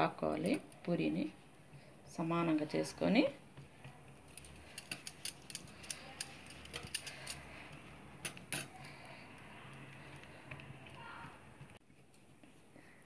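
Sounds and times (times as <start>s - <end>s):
bangles clinking: 4.2s - 10.3s.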